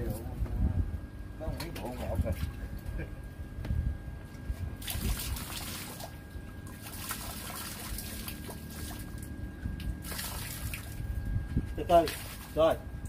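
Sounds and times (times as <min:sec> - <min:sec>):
liquid trickling and splashing: 0:04.8 - 0:12.9.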